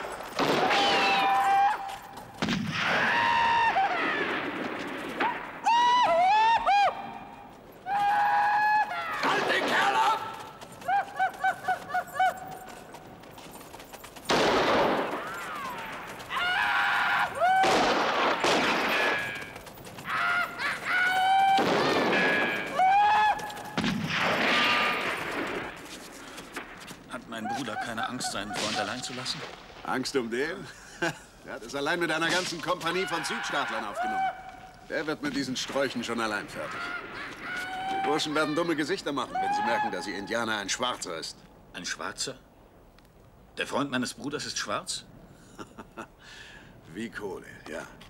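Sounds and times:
gunshots: 0.4 - 1.3, 2.4 - 3.3, 9.2 - 10.2, 14.3 - 15.8, 17.5 - 19.6, 21.6 - 22.8, 23.8 - 25.8, 28.4 - 29.9.

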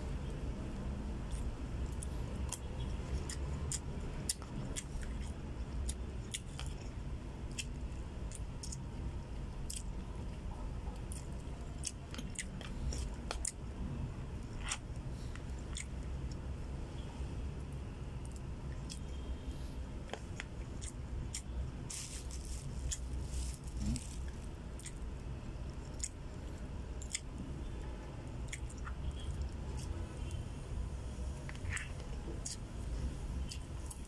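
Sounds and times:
steady low hum: 0.0 - 34.0
person chewing: 1.3 - 10.4, 11.0 - 13.6, 14.4 - 16.5, 18.2 - 19.3, 20.0 - 26.2, 27.0 - 27.4, 28.4 - 29.9, 31.4 - 34.0.

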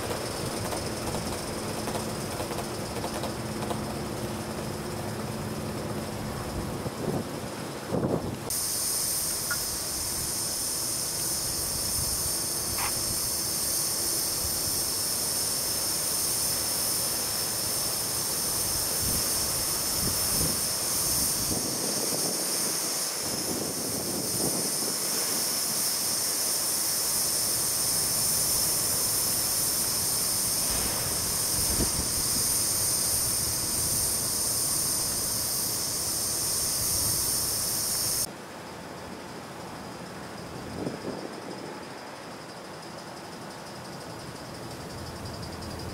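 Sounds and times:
steam locomotive hissing: 8.5 - 38.3.

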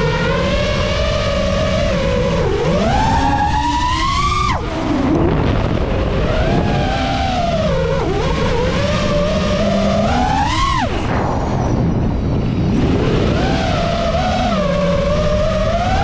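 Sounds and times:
drone motors whining: 0.0 - 16.0
rushing air noise: 3.0 - 16.0.

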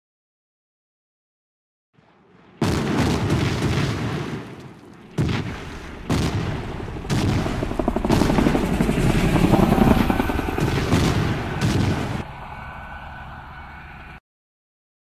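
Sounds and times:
explosion booms: 2.0 - 12.3
helicopter cannon firing: 2.4 - 12.2
helicopter engine and rotor: 5.9 - 14.2.

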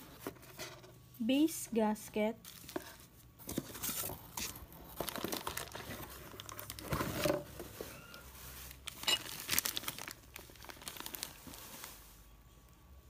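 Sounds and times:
plastic bag crinkling: 2.4 - 12.2.

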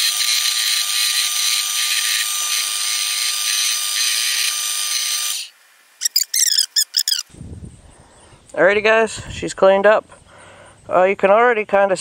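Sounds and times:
high-pitched squeaks: 6.0 - 7.3.

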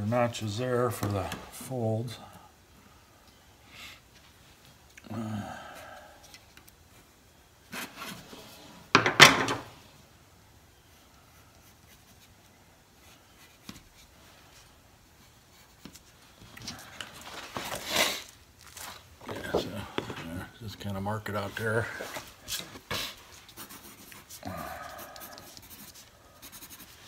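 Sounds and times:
rustling and knocks: 8.9 - 9.8.

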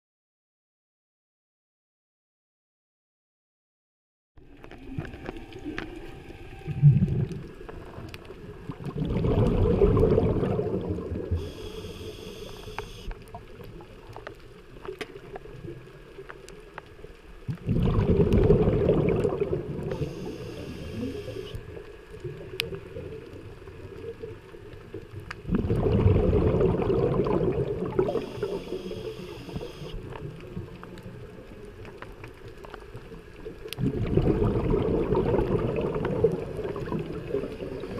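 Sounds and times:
underwater bubbles rumbling: 4.4 - 37.9
regulator hiss: 11.4 - 13.1, 19.9 - 21.6, 28.1 - 30.0.

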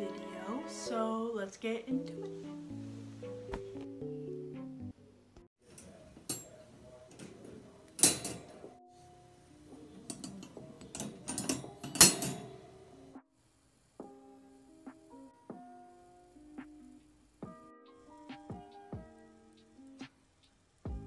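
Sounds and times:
soft music with held notes: 0.0 - 13.2, 14.0 - 21.0
wire crate door rattling: 8.0 - 8.5.

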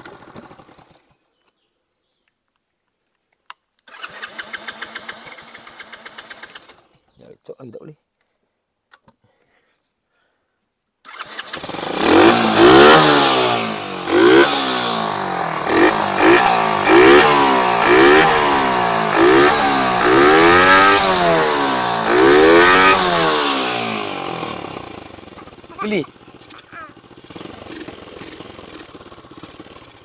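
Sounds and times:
small engine starting and revving: 0.0 - 1.2, 3.8 - 6.9, 11.0 - 30.0.

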